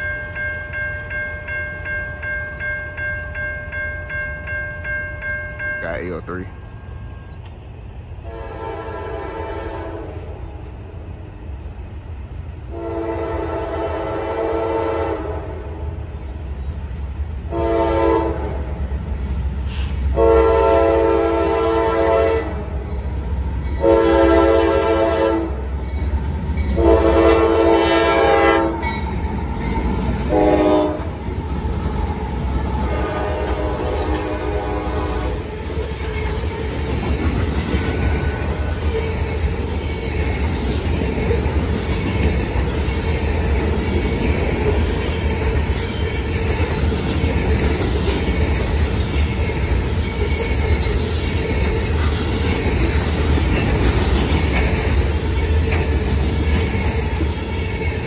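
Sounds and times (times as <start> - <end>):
freight train passing: 0.0 - 58.0
train air horn blasts: 8.2 - 10.4, 12.7 - 15.7, 17.5 - 18.7, 19.7 - 22.8, 23.8 - 25.8, 26.8 - 28.9, 30.3 - 31.2, 32.8 - 35.5
locomotive rumble: 16.2 - 58.0.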